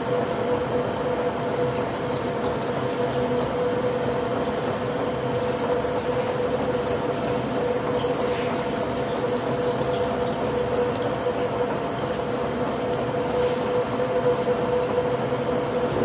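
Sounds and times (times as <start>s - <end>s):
steady machine whine: 0.0s - 16.0s
lathe machine drone: 10.2s - 16.0s.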